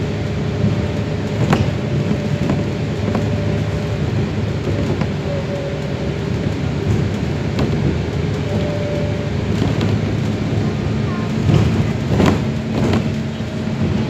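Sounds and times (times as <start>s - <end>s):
bus engine and road rumble: 0.0s - 14.0s
bodywork rattles: 0.4s - 5.2s, 9.4s - 14.0s.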